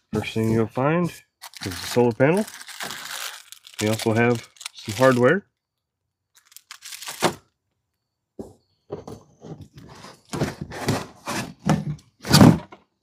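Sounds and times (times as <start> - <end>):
plastic packaging crinkling: 1.4 - 5.3, 6.3 - 7.4.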